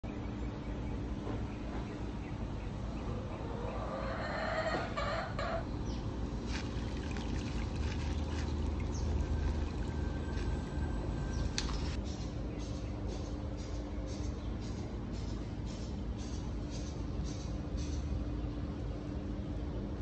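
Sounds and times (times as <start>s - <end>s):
chickens clucking: 3.1s - 5.6s
low steady hum: 5.6s - 20.0s.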